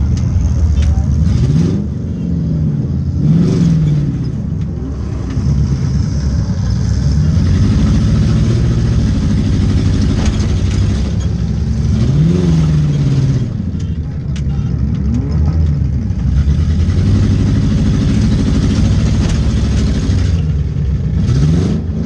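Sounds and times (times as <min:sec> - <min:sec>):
car engine revving roughly: 0:00.0 - 0:22.0.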